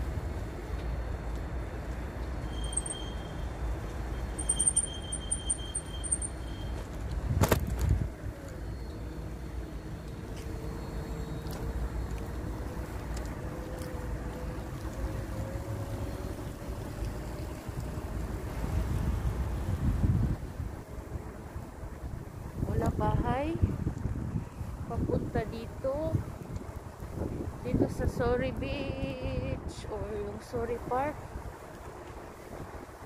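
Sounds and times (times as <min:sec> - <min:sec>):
road noise: 0:00.0 - 0:33.0
high repeated chirping tones: 0:02.5 - 0:03.5, 0:04.3 - 0:06.6
wind rumbling on microphone: 0:04.4 - 0:08.5, 0:11.4 - 0:33.0.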